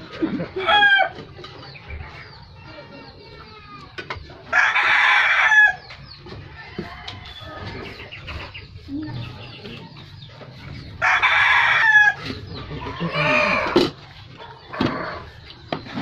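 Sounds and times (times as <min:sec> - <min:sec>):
rooster crowing: 0:11.0 - 0:12.2.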